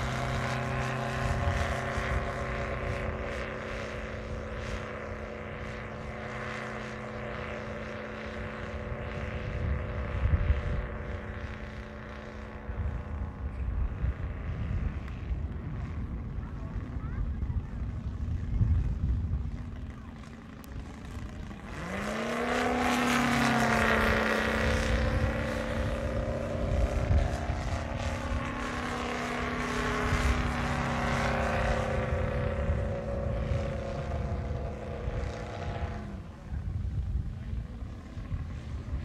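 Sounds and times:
model plane engine running: 0:00.0 - 0:39.0
wind rumble on microphone: 0:00.0 - 0:39.0.

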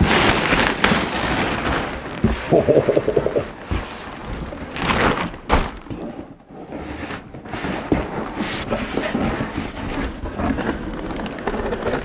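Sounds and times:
cardboard scraping and rustling: 0:03.5 - 0:12.0.

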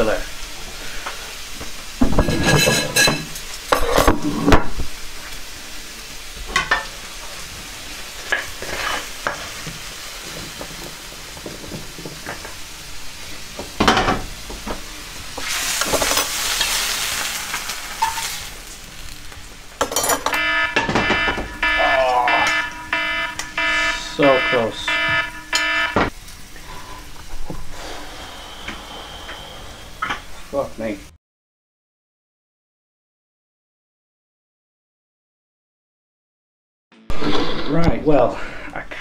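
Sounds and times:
food sizzling: 0:00.0 - 0:31.1
metal utensil scraping a frying pan: 0:02.0 - 0:04.4, 0:08.2 - 0:09.6, 0:15.4 - 0:19.1
smoke alarm beeping: 0:20.2 - 0:26.1.

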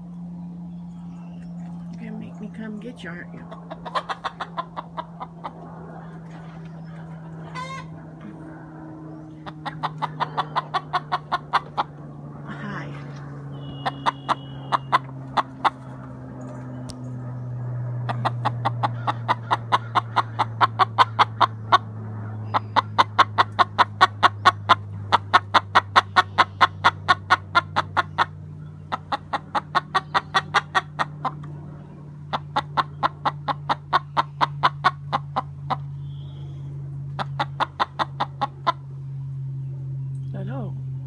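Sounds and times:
hen clucking loudly: 0:03.1 - 0:12.8, 0:13.6 - 0:16.1, 0:18.0 - 0:31.6, 0:32.2 - 0:36.0, 0:37.0 - 0:39.0.

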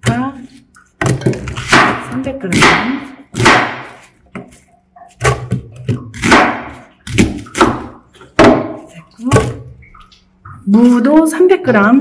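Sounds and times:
knife cutting onion on board: 0:00.0 - 0:08.9.

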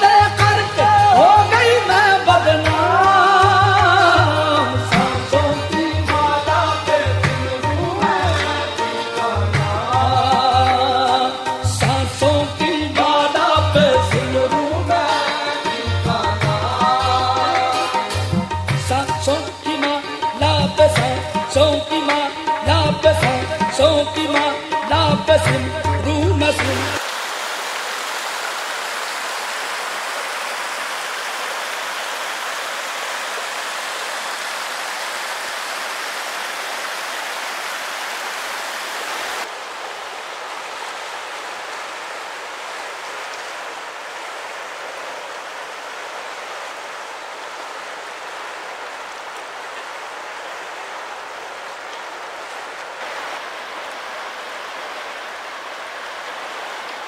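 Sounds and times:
river rushing over rapids: 0:26.6 - 0:57.0
stream splashing over boulders: 0:26.6 - 0:57.0.

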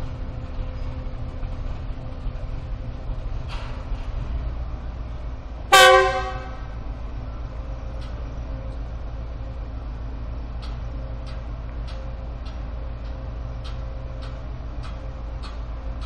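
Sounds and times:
locomotive low rumble: 0:00.0 - 0:16.0
locomotive horn toot: 0:05.7 - 0:06.8.

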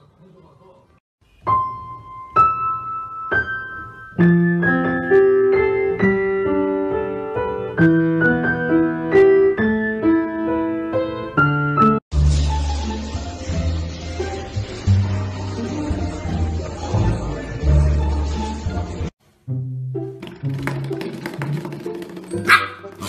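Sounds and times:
gentle piano music: 0:01.3 - 0:19.1.

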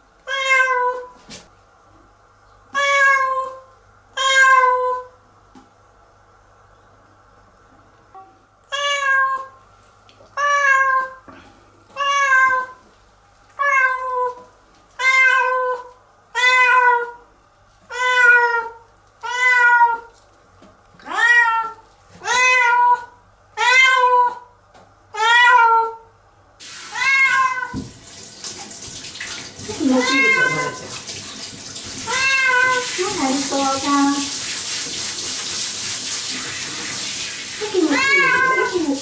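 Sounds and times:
cat meowing loudly: 0:08.7 - 0:09.6, 0:12.0 - 0:12.8, 0:17.9 - 0:20.1, 0:21.0 - 0:24.4, 0:25.2 - 0:26.0, 0:26.9 - 0:27.8, 0:29.8 - 0:30.9, 0:32.0 - 0:32.9, 0:37.7 - 0:38.9
shower water hissing: 0:26.6 - 0:39.0.

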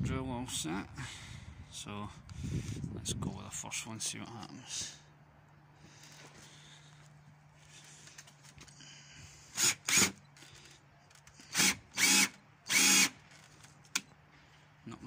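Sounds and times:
power drill whirring: 0:09.5 - 0:14.0.

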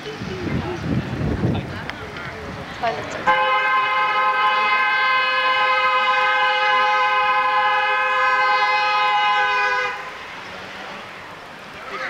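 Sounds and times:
car horn blast: 0:03.3 - 0:10.2.

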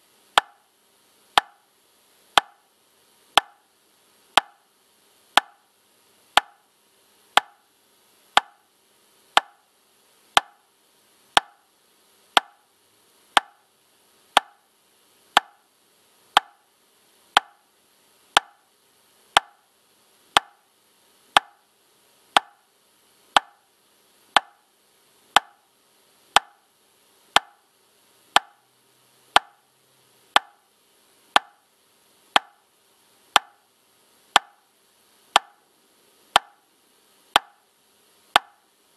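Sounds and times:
metronome clicking: 0:00.4 - 0:00.6, 0:32.4 - 0:32.6, 0:35.4 - 0:35.6, 0:38.4 - 0:38.6.

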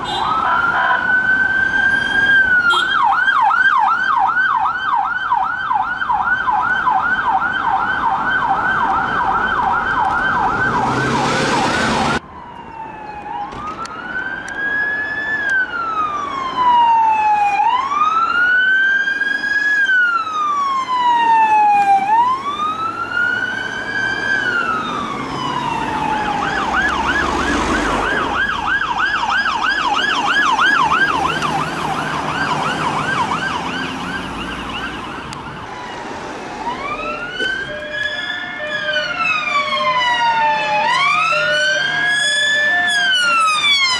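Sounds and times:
siren fast yelp: 0:00.0 - 0:14.0, 0:36.7 - 0:43.9
siren slow wail: 0:00.0 - 0:43.9.

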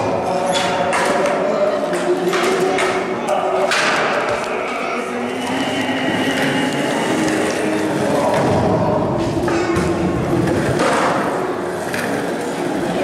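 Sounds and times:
crowd chatter echoing in hall: 0:00.0 - 0:13.0
skateboard wheels rolling on concrete: 0:05.6 - 0:09.2.

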